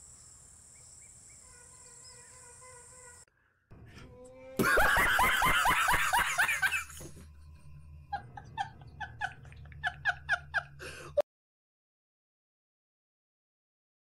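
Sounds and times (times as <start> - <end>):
man laughing hard: 4.6 - 7.3, 8.1 - 11.2.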